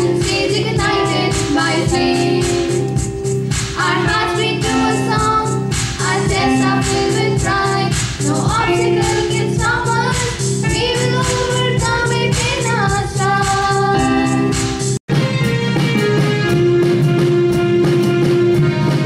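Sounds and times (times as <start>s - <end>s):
girls singing through microphones: 0.0s - 3.0s, 3.8s - 14.5s
instrumental accompaniment with beat: 0.0s - 19.0s.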